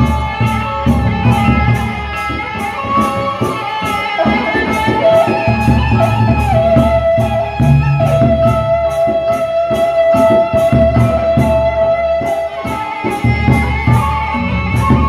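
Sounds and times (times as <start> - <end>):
cymbals clashing: 0.0 - 15.0
ringing gongs: 0.0 - 15.0
high held note: 1.2 - 8.6.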